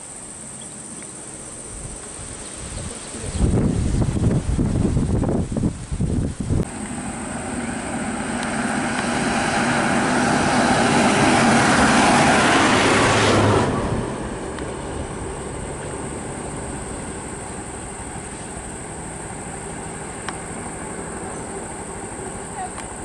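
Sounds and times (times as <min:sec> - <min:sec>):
vehicle engine and tyre noise: 0:00.0 - 0:23.0
wind buffeting microphone: 0:01.7 - 0:20.7.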